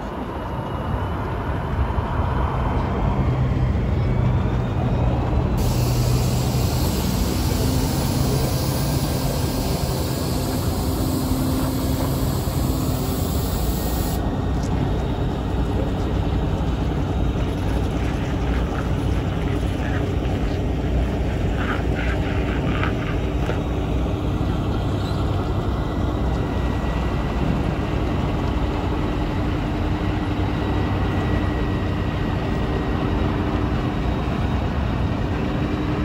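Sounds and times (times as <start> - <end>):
diesel truck engine running: 0.0 - 36.0
high hiss: 5.6 - 14.2.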